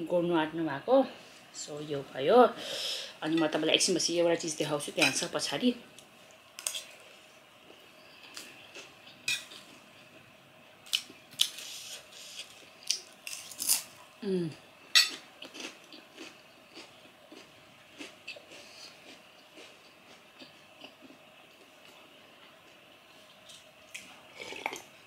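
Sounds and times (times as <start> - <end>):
cutlery clinking on plate: 15.0 - 15.2.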